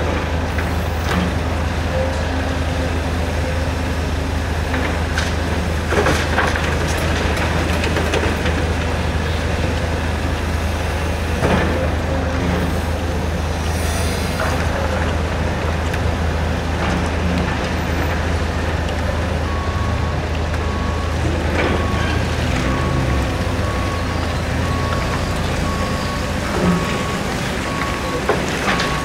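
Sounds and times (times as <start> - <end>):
diesel engines droning: 0.0 - 29.0
reversing beeper: 19.4 - 29.0.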